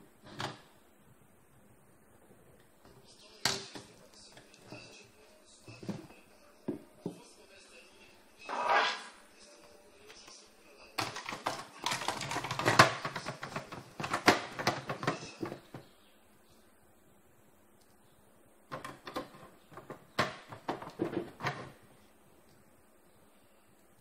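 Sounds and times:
plastic and metal clatter: 11.0 - 15.9, 18.7 - 21.8.

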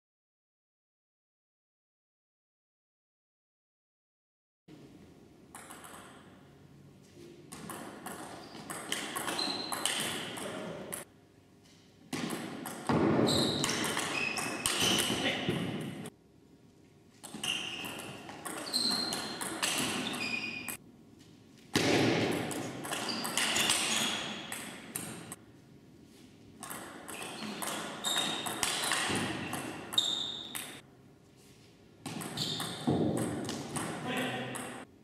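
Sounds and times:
table tennis ball hits: 5.6 - 6.4, 7.5 - 11.1, 12.1 - 16.1, 17.2 - 20.8, 21.8 - 25.4, 26.6 - 30.8, 32.0 - 34.9
shoe squeaks: 8.3 - 10.3, 13.2 - 16.1, 17.2 - 20.8, 22.9 - 25.3, 27.1 - 30.8, 32.2 - 32.9.

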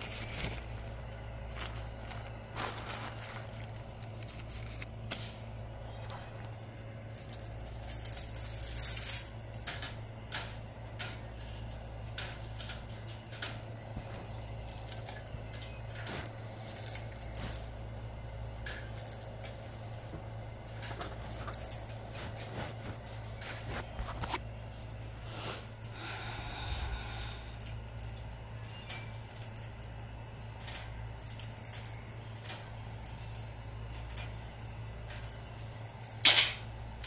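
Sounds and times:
metal screws clinking on wire mesh: 7.1 - 23.7, 26.6 - 37.0.

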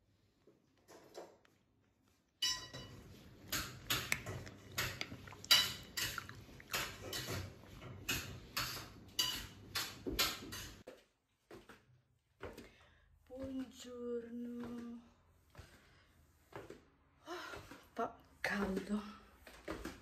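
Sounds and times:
spoon scraping and tapping glass: 2.4 - 7.5, 8.1 - 9.9.

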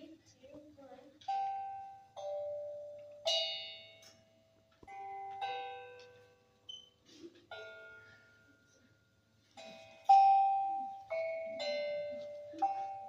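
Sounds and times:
slow ringing instrument notes: 7.5 - 13.0.

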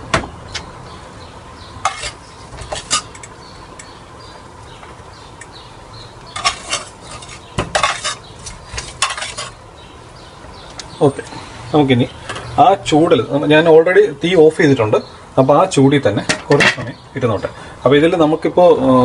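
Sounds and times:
metal spoon scraping a pot: 1.8 - 3.3, 6.3 - 9.6.

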